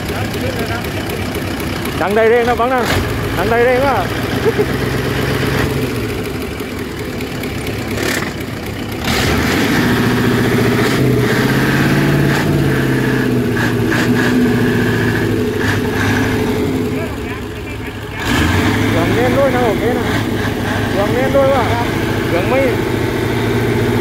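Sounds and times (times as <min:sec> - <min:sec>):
boat engine revving: 0:00.0 - 0:24.0.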